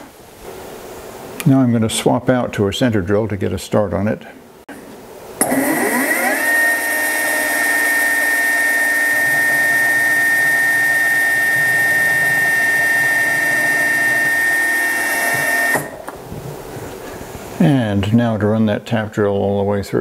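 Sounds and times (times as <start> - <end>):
drill cutting into brass: 5.4 - 16.0
mill spindle whining: 5.4 - 16.2.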